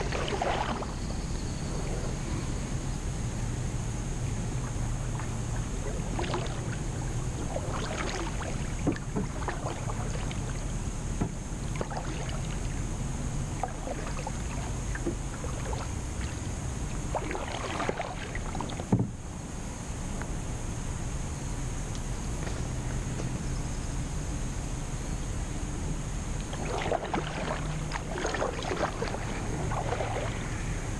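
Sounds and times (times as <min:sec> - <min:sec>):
paddle splashing water: 0:00.0 - 0:01.2, 0:04.5 - 0:19.2, 0:26.4 - 0:30.6
water gurgling along hull: 0:00.0 - 0:19.9, 0:24.9 - 0:30.9
steady low rumble: 0:00.0 - 0:30.9.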